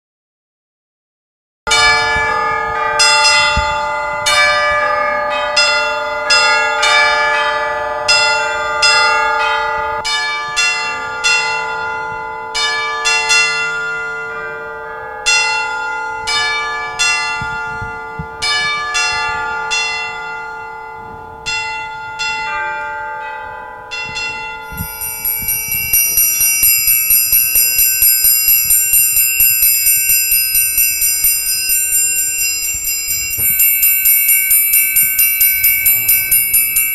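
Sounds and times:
bell-like metal percussion notes: 1.7s - 36.9s
triangle being beaten: 24.1s - 36.9s.

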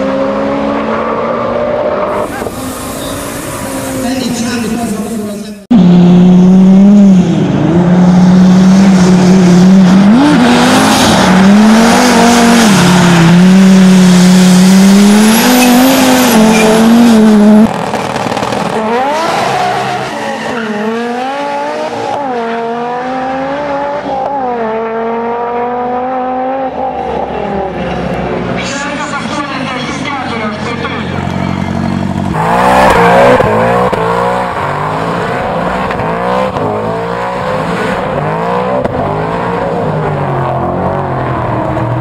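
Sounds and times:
car accelerating through gears: 18.6s - 28.6s, 31.2s - 42.0s.

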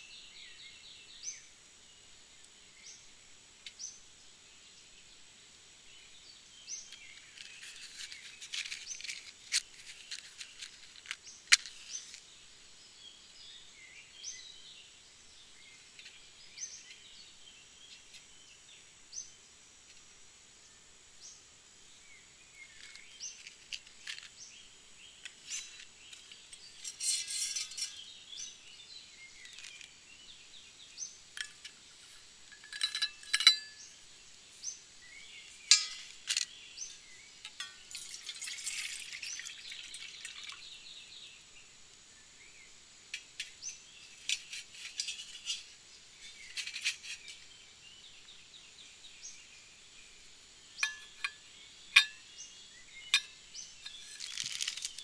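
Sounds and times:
small bird chirping: 5.8s - 55.0s
match striking: 6.9s - 12.2s, 53.8s - 55.0s
metal bottle clicks: 32.5s - 33.9s, 35.7s - 38.2s, 50.8s - 51.4s, 52.0s - 52.2s.

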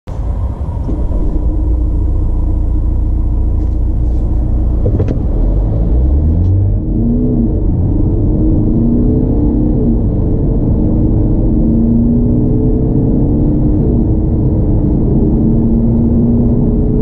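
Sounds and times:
diesel engine idle rumble: 0.1s - 8.7s
engine accelerating: 0.1s - 17.0s.

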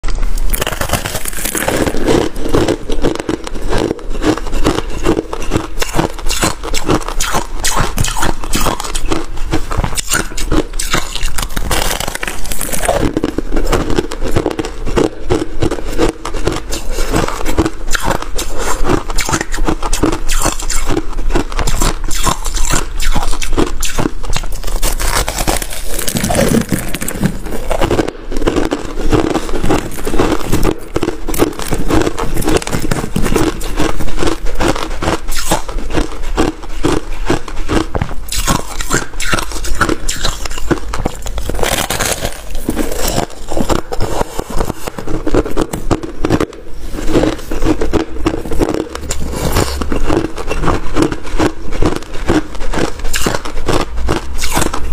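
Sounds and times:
ice being chewed: 0.0s - 54.9s.

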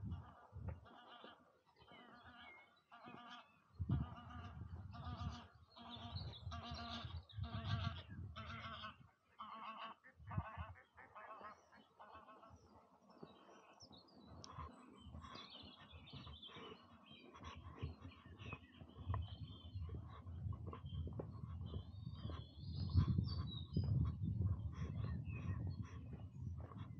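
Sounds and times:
geese honking: 0.0s - 13.8s, 14.4s - 19.0s
small birds chirping: 0.9s - 9.8s, 10.9s - 26.9s.

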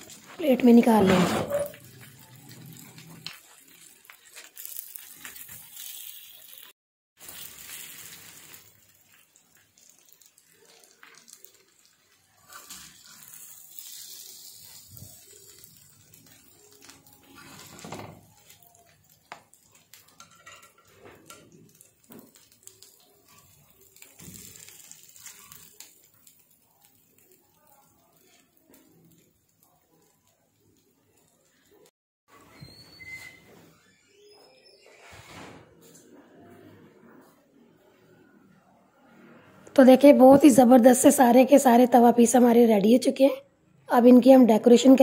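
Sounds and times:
chicken sizzling on griddle: 0.0s - 31.9s
metal spatula scraping griddle: 12.4s - 18.5s, 20.1s - 21.6s.

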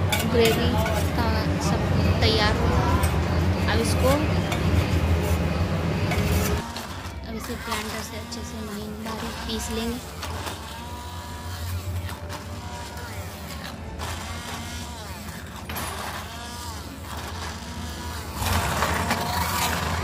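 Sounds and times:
hand blender motor whine: 0.0s - 20.0s.

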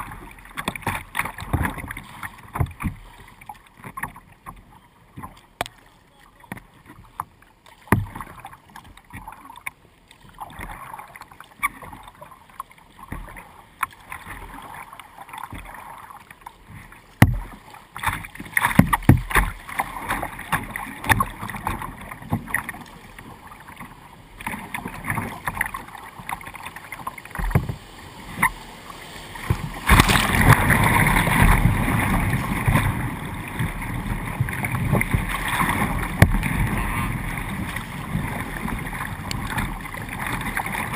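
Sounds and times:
paddle strokes in water: 0.0s - 40.9s
water splashing against kayak: 0.0s - 40.9s
rushing whitewater rapid: 19.6s - 40.9s.

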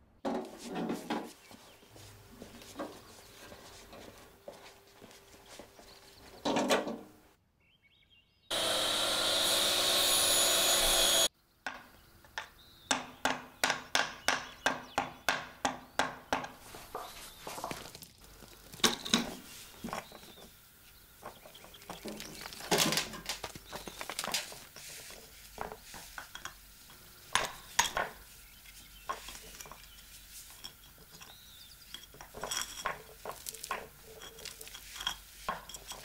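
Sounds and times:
crust cracking and crumbling: 17.4s - 20.4s, 21.3s - 26.5s, 31.9s - 36.0s.

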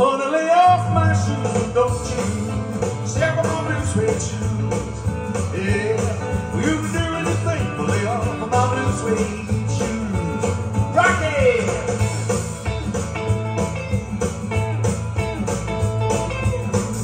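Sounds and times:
man singing into microphone: 0.0s - 12.1s
backing track with bass line: 0.0s - 17.0s.

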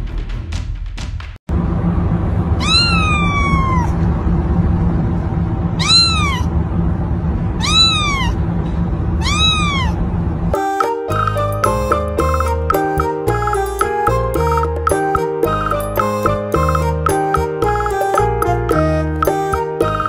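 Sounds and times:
kitten meowing: 2.6s - 4.0s, 5.8s - 6.5s, 7.6s - 8.4s, 9.2s - 10.0s.

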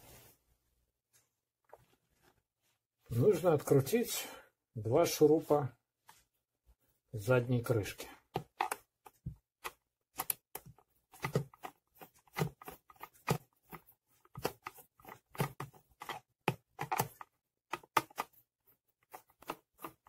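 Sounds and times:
screwdriver clicking and scraping: 8.3s - 18.4s, 19.0s - 20.0s.

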